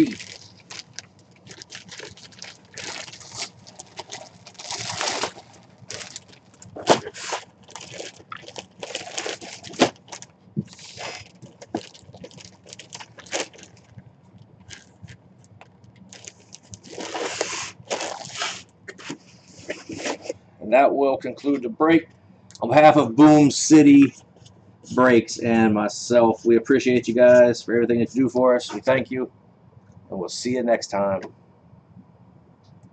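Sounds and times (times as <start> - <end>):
plastic bag crinkling: 0.0 - 19.1
scrapes against cardboard box: 16.9 - 20.3.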